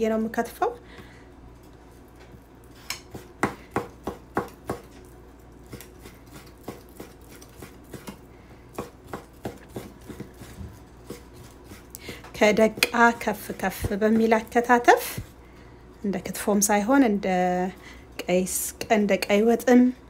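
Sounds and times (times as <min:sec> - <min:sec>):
knife chopping meat on wooden board: 0:03.0 - 0:04.9, 0:05.7 - 0:13.2.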